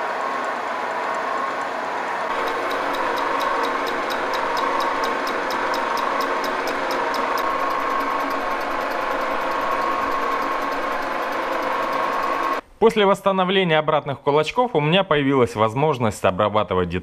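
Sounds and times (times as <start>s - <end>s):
metal lathe whine: 0.0s - 12.6s
lathe ticking: 2.3s - 12.6s.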